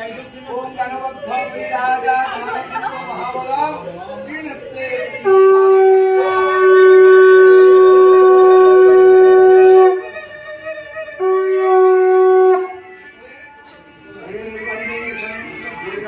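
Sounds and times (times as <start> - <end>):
conch shell blasts: 5.3 - 10.1, 11.2 - 12.9.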